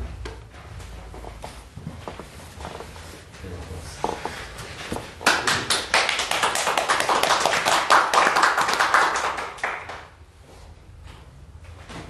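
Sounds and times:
group applause: 0:05.2 - 0:10.2.

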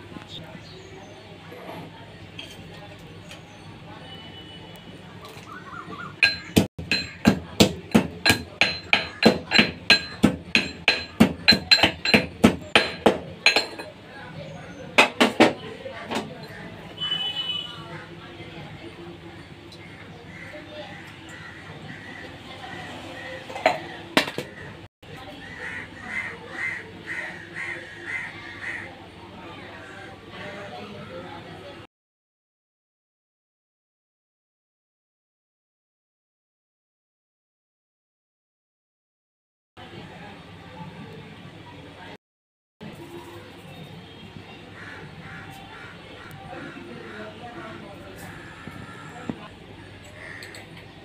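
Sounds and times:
sharp knocks: 0:06.2 - 0:13.8
pestle pounding in metal mortar: 0:06.2 - 0:13.9, 0:15.0 - 0:15.6
crow cawing: 0:19.8 - 0:22.8, 0:25.5 - 0:29.0, 0:44.8 - 0:50.7.

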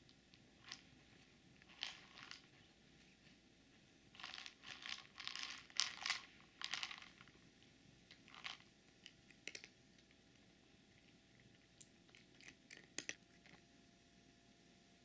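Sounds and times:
cat crunching dry kibble: 0:01.6 - 0:02.6, 0:04.2 - 0:07.4, 0:08.1 - 0:13.6.

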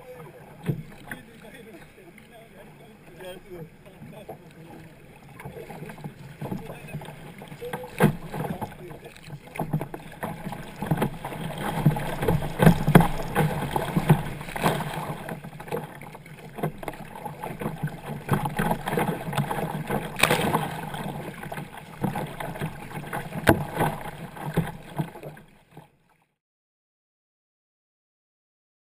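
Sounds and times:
water rushing and splashing: 0:00.0 - 0:25.8
sharp paddle splashes: 0:07.5 - 0:15.3, 0:16.5 - 0:25.2.

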